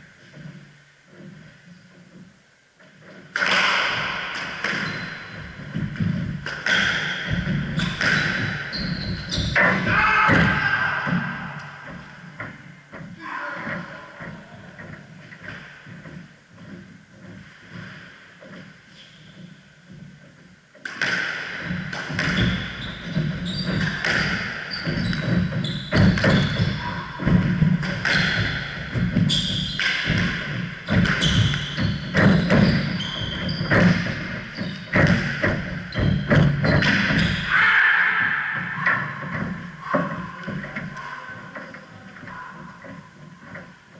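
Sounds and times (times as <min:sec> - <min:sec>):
squash ball smacking: 0:03.1 - 0:13.1, 0:20.8 - 0:37.5
shoes squeaking on wooden floor: 0:04.0 - 0:20.6, 0:21.4 - 0:43.9.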